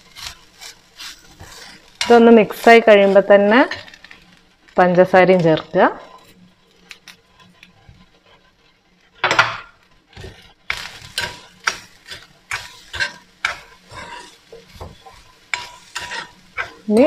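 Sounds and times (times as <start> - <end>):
spoon scraping a pan: 0.0 - 4.4, 5.3 - 17.0.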